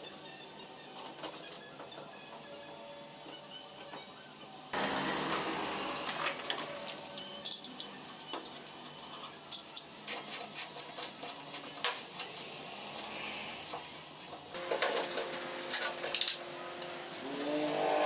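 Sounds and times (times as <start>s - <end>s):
metallic clicks and clinks: 7.2s - 8.6s.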